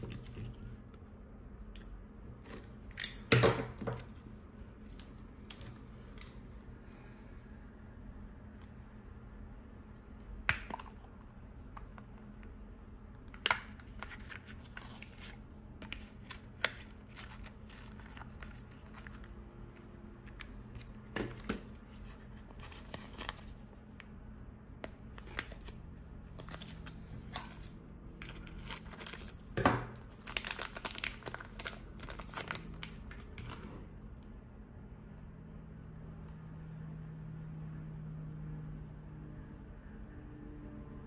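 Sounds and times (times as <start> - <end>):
plastic bag crinkling and tearing: 25.1 - 27.7, 28.3 - 33.7.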